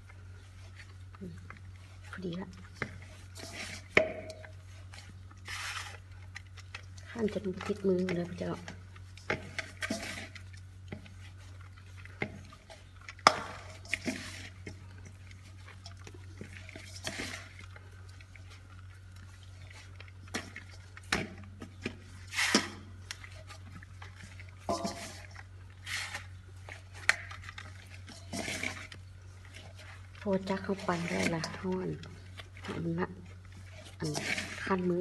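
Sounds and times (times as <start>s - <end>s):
hands kneading dough: 0.0s - 35.0s
metal bowl clinking: 3.4s - 4.6s, 24.4s - 25.4s, 30.3s - 32.8s.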